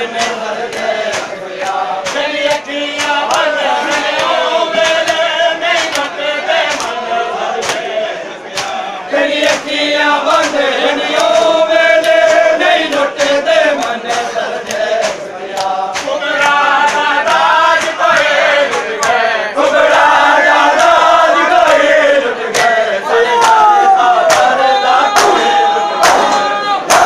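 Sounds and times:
hands slapping chests: 0.0s - 7.0s, 7.6s - 8.8s, 9.4s - 21.9s, 22.5s - 27.0s
men chanting in chorus: 0.0s - 27.0s.

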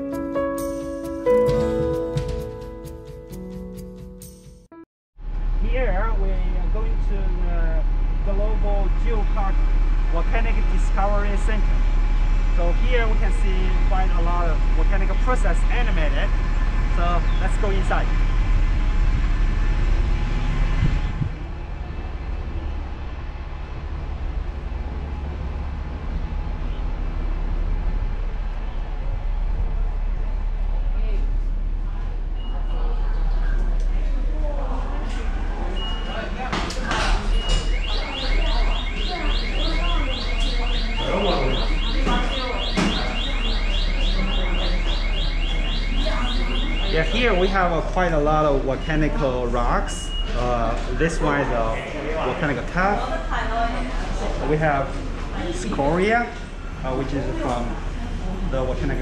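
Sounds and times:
low traffic rumble: 5.2s - 59.0s
high rising alarm chirp: 37.3s - 47.8s.

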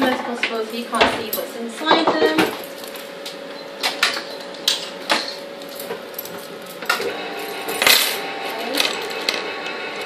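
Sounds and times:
electric can opener motor: 6.9s - 10.0s.

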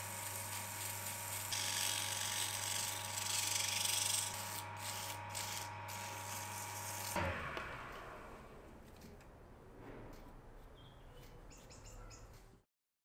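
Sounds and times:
sandpaper scraping metal: 0.0s - 7.2s
wood lathe humming: 0.0s - 8.6s.

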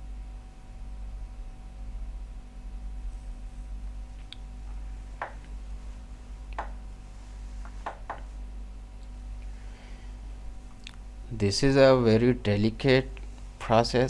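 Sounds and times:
low electrical hum: 0.0s - 14.0s
light clicks and taps: 4.2s - 5.6s, 6.5s - 6.8s.

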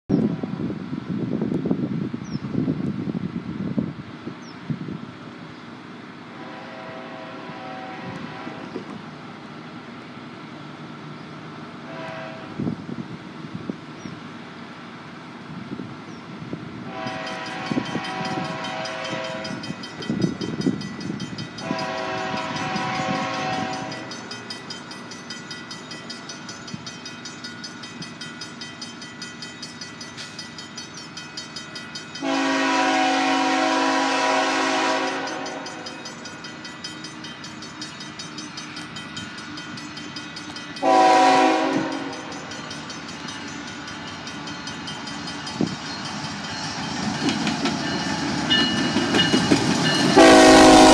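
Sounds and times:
locomotive air horn blasts: 6.3s - 8.8s, 11.8s - 12.7s, 16.8s - 19.6s, 21.6s - 24.1s, 32.2s - 35.8s, 40.8s - 42.3s, 50.2s - 50.9s.

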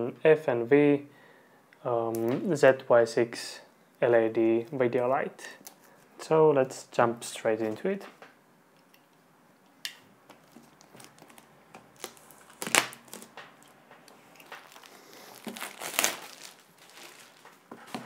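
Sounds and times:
plastic shrink wrap crinkling: 10.3s - 18.0s.

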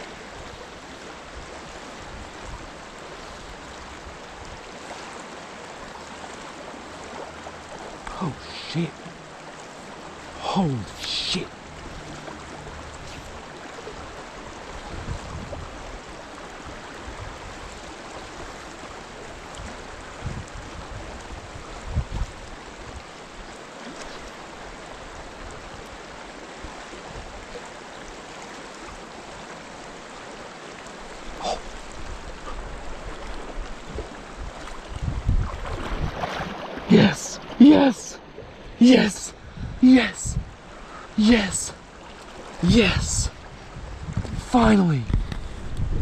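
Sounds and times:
creek water rushing: 0.0s - 46.0s.

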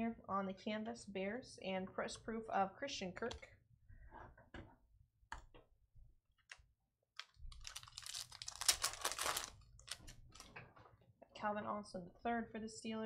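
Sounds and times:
foil wrapper crinkling and tearing: 7.2s - 10.5s.

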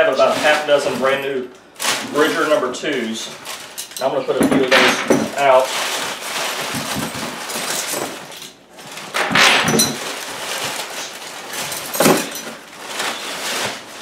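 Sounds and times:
packing paper rustling: 0.0s - 14.0s
metal traps clanking: 9.2s - 10.2s, 11.6s - 12.6s.

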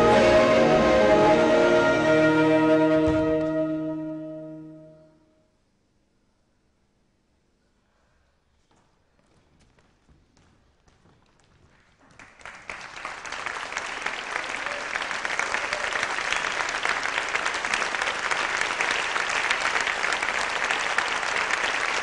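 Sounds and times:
audience applause: 11.9s - 22.0s.

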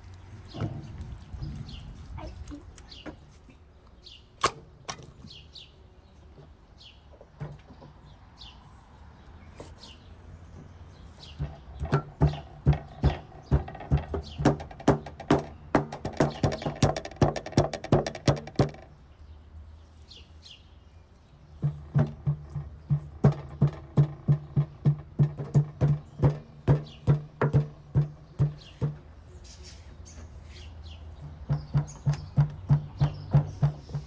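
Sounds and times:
rapid sharp knocks: 11.4s - 18.9s, 21.6s - 29.0s, 31.3s - 34.0s.

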